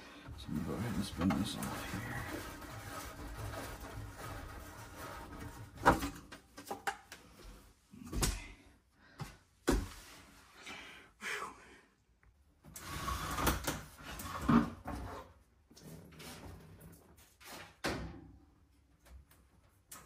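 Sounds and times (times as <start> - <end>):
scraping and rustling: 0.3 - 6.5.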